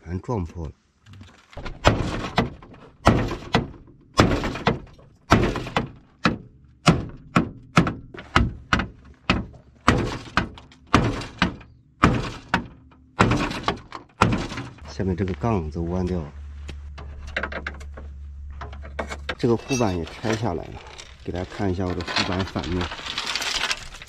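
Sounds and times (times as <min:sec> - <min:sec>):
hard knocks on metal: 0:01.6 - 0:14.8.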